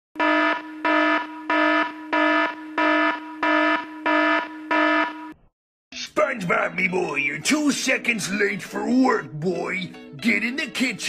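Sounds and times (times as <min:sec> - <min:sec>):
electronic alarm buzzer: 0:00.2 - 0:05.4.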